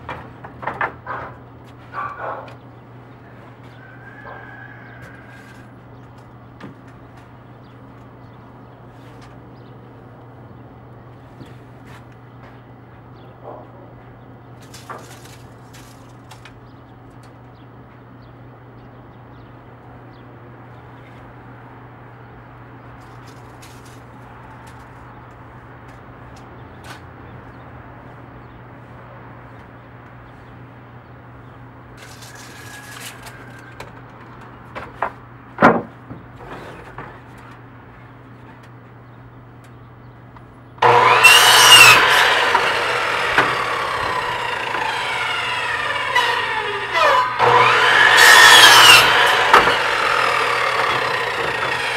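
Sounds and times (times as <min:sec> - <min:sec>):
knocks and clicks of wood: 0:00.0 - 0:01.8, 0:33.7 - 0:36.2
miter saw cutting wood: 0:40.8 - 0:51.9.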